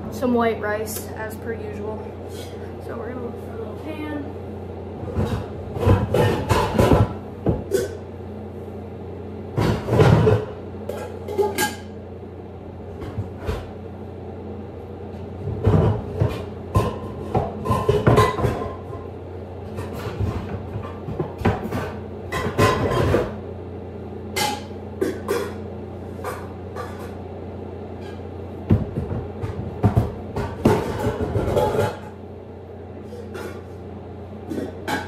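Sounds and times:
pots and pans clattering: 0:05.0 - 0:08.0, 0:09.6 - 0:11.9, 0:15.4 - 0:23.4, 0:24.3 - 0:25.6, 0:26.2 - 0:27.2, 0:28.0 - 0:32.2, 0:34.5 - 0:35.0.

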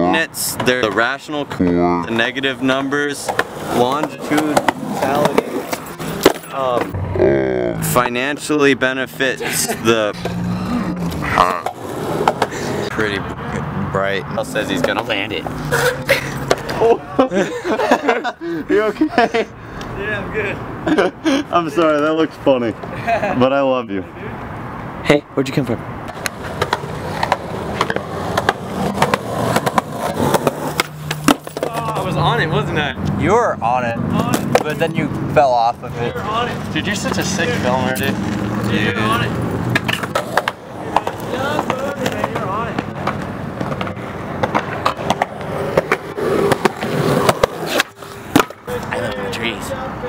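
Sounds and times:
skateboard wheels rolling on concrete: 0:00.0 - 0:07.2, 0:07.8 - 0:13.6, 0:14.3 - 0:23.4, 0:25.6 - 0:50.0
skateboard smacking the ground: 0:03.2 - 0:06.9, 0:11.6 - 0:12.6, 0:26.1 - 0:32.0, 0:39.7 - 0:49.2.

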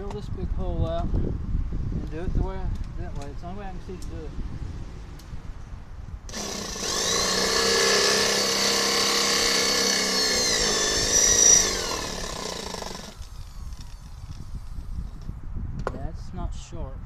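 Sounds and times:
electric drill whining: 0:06.3 - 0:14.7.

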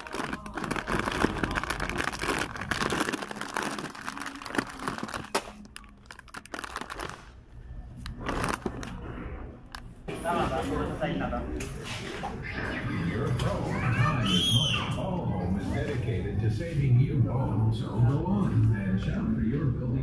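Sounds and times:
plastic snack bags crinkling: 0:00.0 - 0:09.9.

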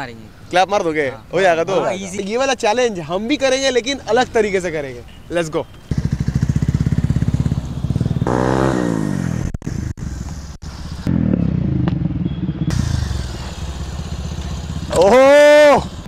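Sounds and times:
motorcycle engine running: 0:05.9 - 0:16.0.

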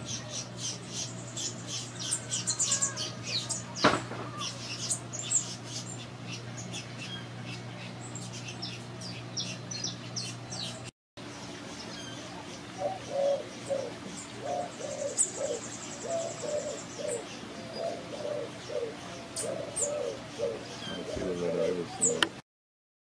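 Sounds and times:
small birds chirping: 0:00.0 - 0:22.4
dove cooing: 0:12.7 - 0:22.4.

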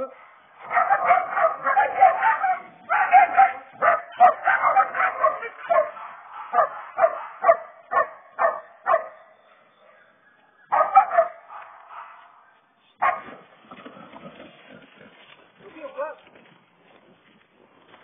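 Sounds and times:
puppies barking and yipping: 0:00.6 - 0:13.5.

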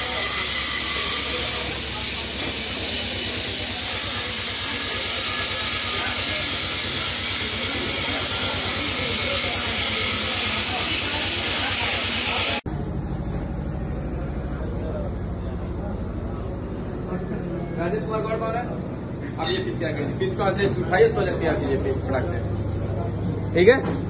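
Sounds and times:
gas cutting torch hissing: 0:00.0 - 0:12.6.

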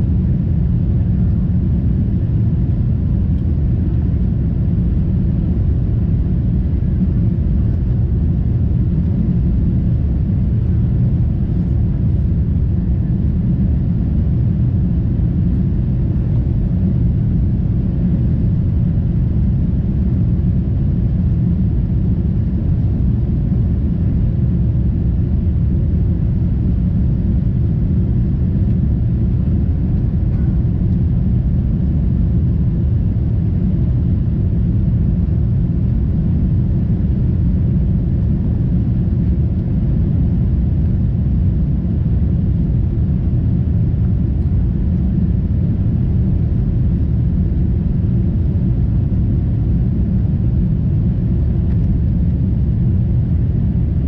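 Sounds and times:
airliner cabin rumble: 0:00.0 - 0:54.0.

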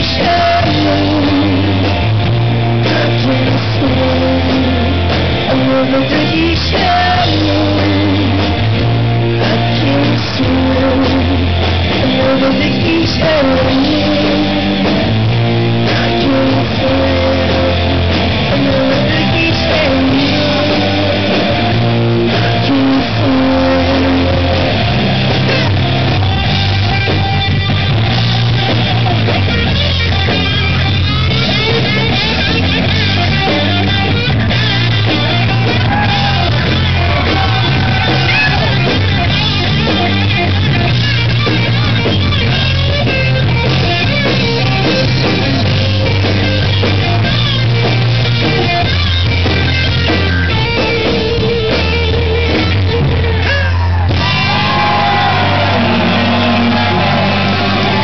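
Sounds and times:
man singing: 0:00.0 - 0:02.1, 0:02.7 - 0:25.7
bass line: 0:00.0 - 0:58.0
drum kit: 0:00.0 - 0:58.0
electric guitars: 0:00.0 - 0:58.0.

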